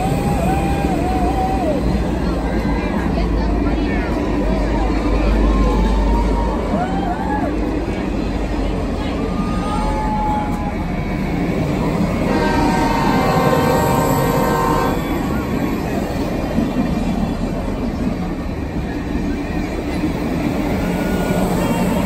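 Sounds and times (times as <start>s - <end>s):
train wheels rumbling on rail: 0.0s - 22.0s
train horn chord: 12.2s - 15.3s.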